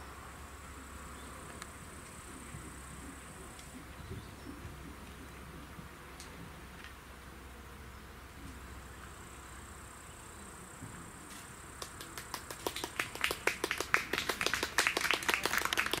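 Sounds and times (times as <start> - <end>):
spectators clapping: 11.8 - 16.0.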